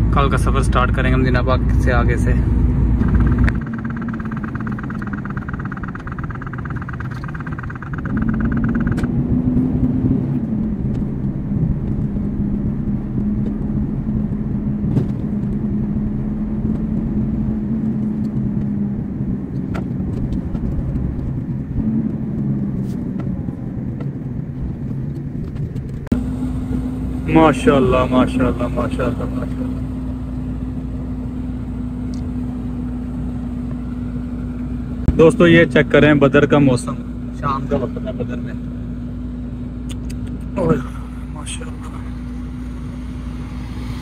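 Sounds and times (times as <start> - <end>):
truck diesel engine drone: 0.0 - 44.0
thin high whine: 3.0 - 9.2, 40.6 - 44.0.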